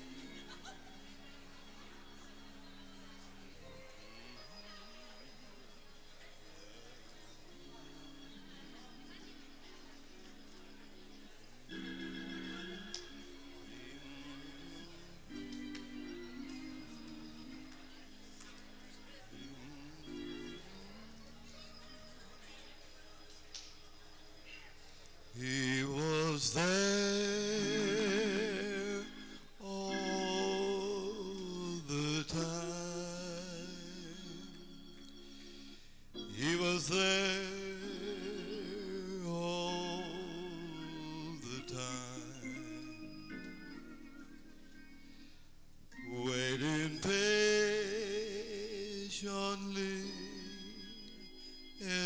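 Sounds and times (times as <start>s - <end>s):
backing music: 7.4s - 22.3s, 25.4s - 52.0s
man singing with vibrato: 11.7s - 15.4s, 19.1s - 21.4s, 25.4s - 35.0s, 36.2s - 44.0s, 46.0s - 52.0s.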